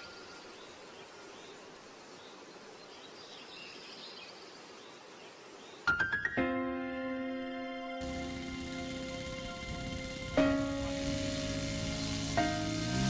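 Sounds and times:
outdoor background hiss: 0:00.0 - 0:13.0
music: 0:05.9 - 0:13.0.

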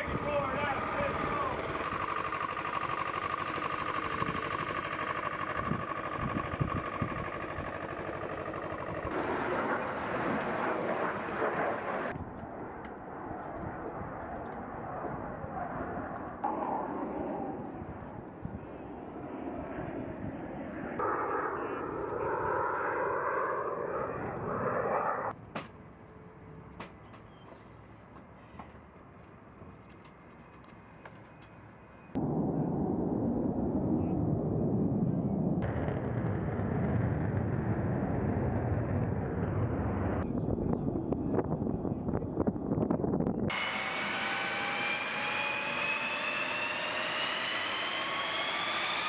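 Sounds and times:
high-pitched engine whine: 0:00.0 - 0:12.1, 0:14.5 - 0:25.4, 0:43.5 - 0:49.0
jet aircraft noise: 0:00.0 - 0:25.4, 0:32.2 - 0:49.0.

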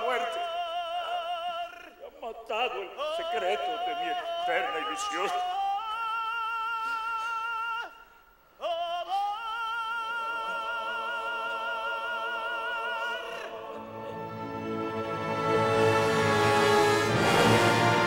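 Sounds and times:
operatic voice singing: 0:00.0 - 0:08.0, 0:08.6 - 0:18.0
orchestra playing: 0:13.7 - 0:18.0.

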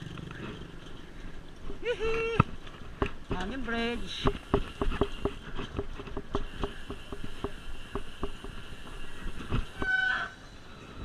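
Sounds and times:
bicycle clanking over metal bridge: 0:00.0 - 0:10.7.

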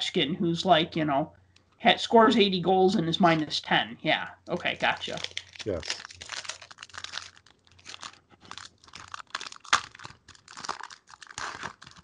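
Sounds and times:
foil wrapper crinkling: 0:04.7 - 0:12.0.

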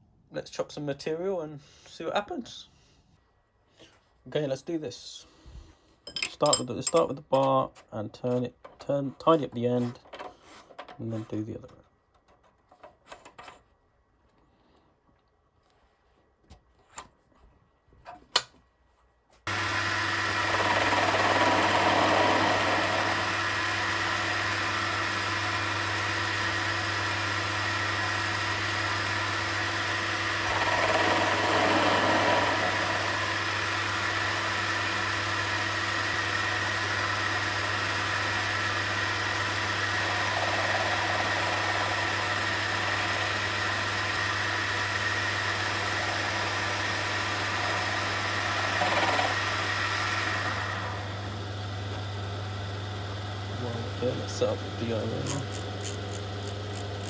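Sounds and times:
lathe running with whine: 0:19.5 - 0:57.0.

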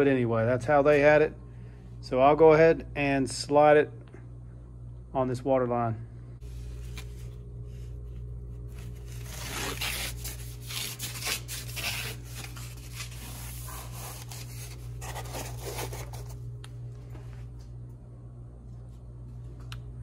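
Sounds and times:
low hum: 0:00.0 - 0:20.0
foam insulation rubbing on pipe: 0:08.9 - 0:16.4.

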